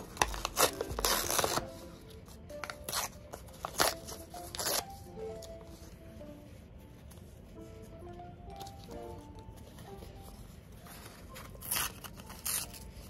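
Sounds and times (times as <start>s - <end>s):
paper rustling and scraping: 0.0s - 5.9s
soft background music: 0.0s - 13.0s.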